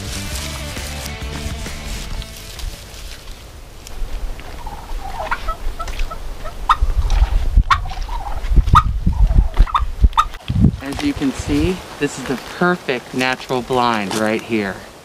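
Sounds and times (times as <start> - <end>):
turkey calling: 4.3 - 6.9, 7.7 - 10.4.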